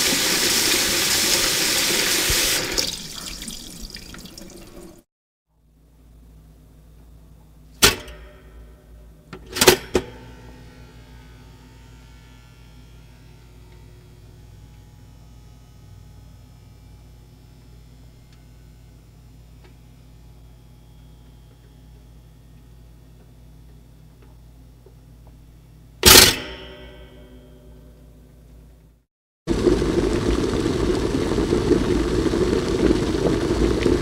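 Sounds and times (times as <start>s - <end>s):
food sizzling in a pot: 0.0s - 4.5s.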